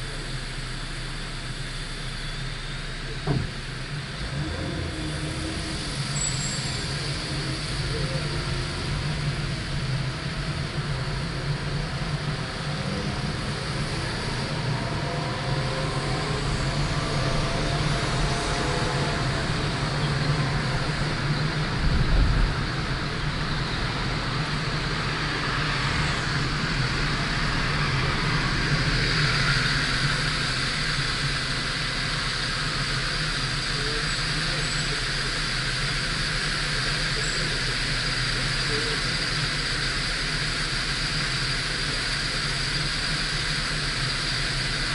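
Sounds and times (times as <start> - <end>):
car road and engine noise: 0.0 - 44.9
low thump: 3.2 - 3.6.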